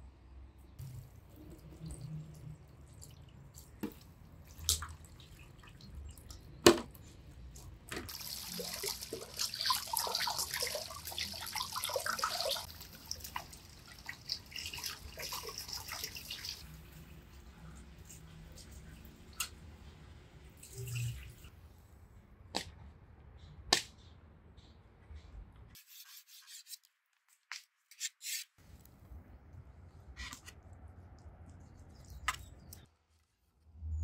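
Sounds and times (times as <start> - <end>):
water running and splashing: 8.1 - 17.2.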